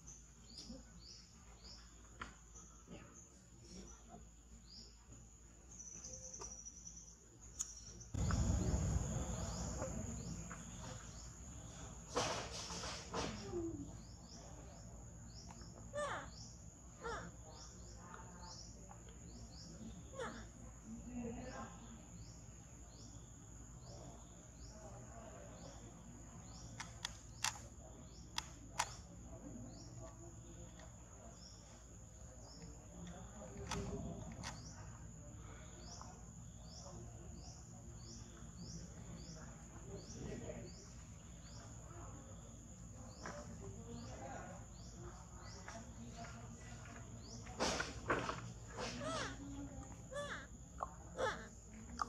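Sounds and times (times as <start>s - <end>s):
high insect drone: 8.2s - 15.4s
falling calls: 48.7s - 51.7s.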